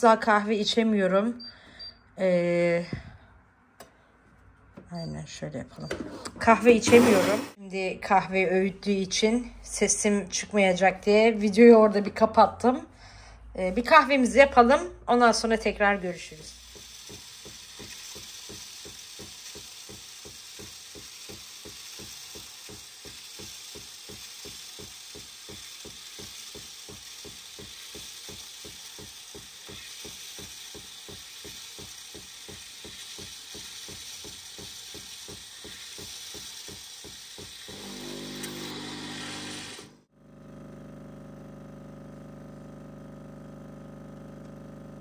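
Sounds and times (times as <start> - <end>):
milk frothing hiss: 6.8 - 7.6, 16.1 - 42.8
espresso machine pump pulsing: 15.7 - 45.0.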